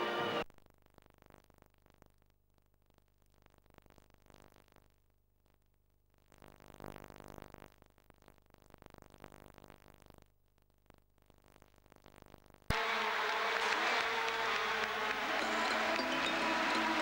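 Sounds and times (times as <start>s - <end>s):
faint music: 12.7s - 17.0s.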